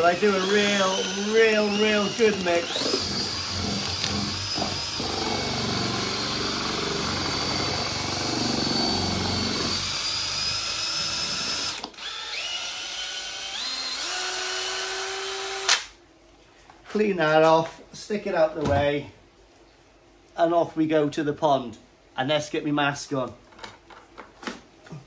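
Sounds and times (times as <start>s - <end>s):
cordless drill motor whine: 0.0s - 15.8s.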